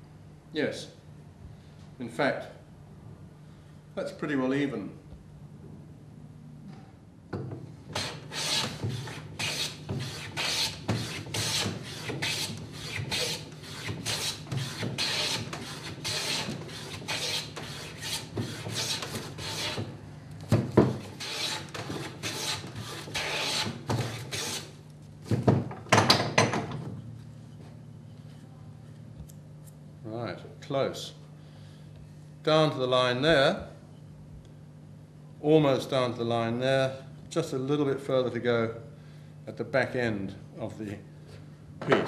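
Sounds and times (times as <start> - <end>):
bench plane scraping wood: 7.9 - 19.9, 20.8 - 24.7.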